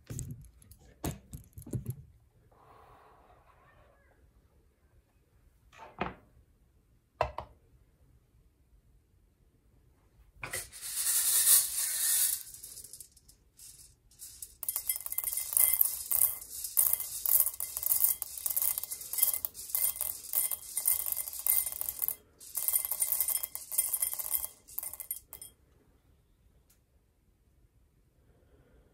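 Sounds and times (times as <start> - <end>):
coffee beans rattling in metal bowl: 10.4 - 25.5
coffee beans clinking into glass: 10.6 - 25.5.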